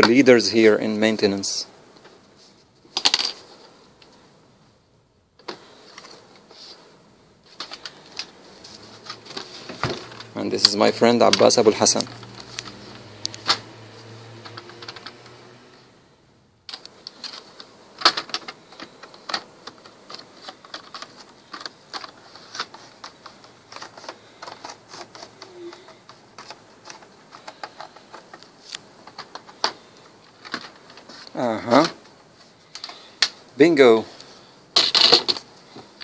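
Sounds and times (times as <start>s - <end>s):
plastic clips clicking and snapping: 11.2s - 13.7s.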